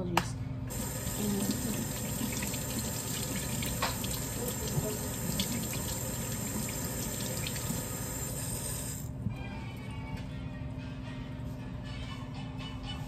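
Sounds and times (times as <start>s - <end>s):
faucet running: 0.7s - 9.1s.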